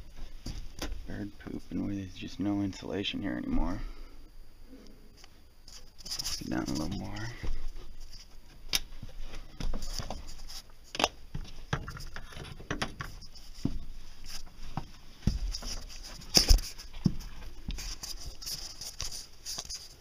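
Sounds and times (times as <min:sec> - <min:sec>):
footsteps on wooden joists: 0:08.5 - 0:10.3, 0:12.9 - 0:18.2.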